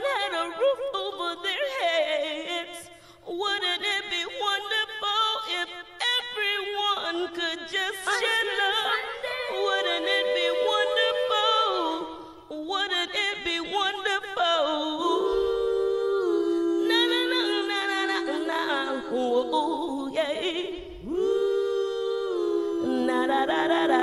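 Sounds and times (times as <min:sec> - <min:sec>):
a cappella voices singing: 0:00.0 - 0:24.0.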